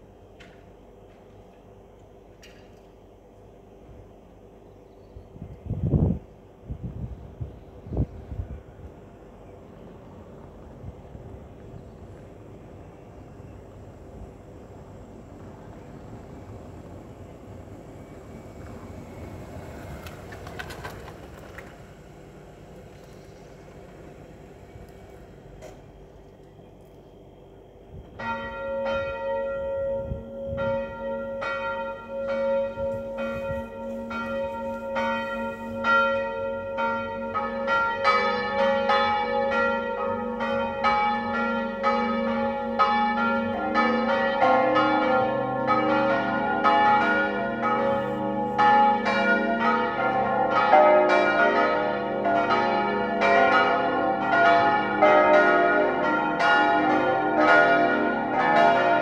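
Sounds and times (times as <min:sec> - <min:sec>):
church bells pealing: 0:28.2 - 0:59.0.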